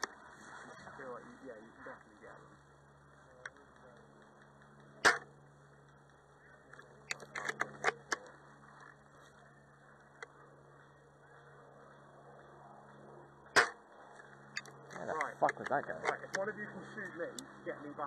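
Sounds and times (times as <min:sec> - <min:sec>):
airsoft rifle shots: 0:04.9 - 0:05.4, 0:13.5 - 0:13.8.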